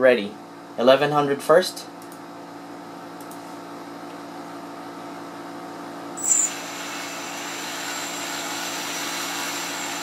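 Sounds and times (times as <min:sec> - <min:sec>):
drone motors whining: 0:06.2 - 0:10.0.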